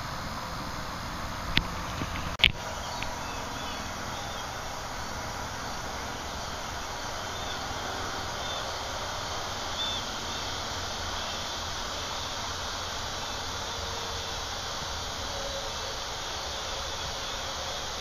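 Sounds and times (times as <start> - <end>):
steady rushing hiss: 0.0 - 18.0.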